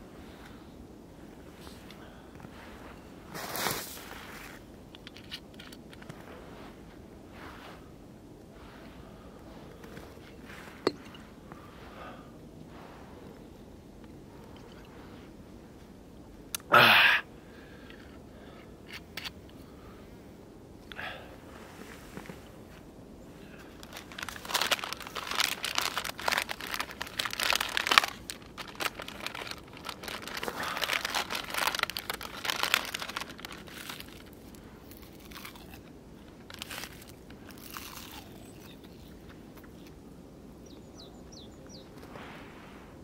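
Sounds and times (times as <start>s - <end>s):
plastic wrapper crinkling: 23.7s - 39.8s
faint bird chirps: 40.6s - 42.0s.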